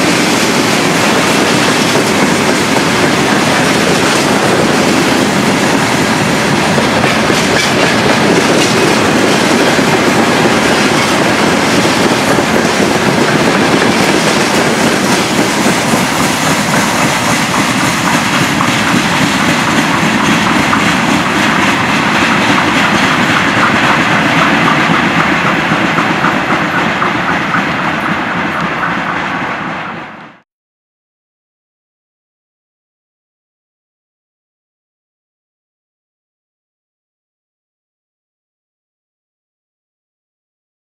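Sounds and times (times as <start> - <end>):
clickety-clack over rail joints: 0.0 - 30.3
wheel-on-rail noise: 0.0 - 30.4.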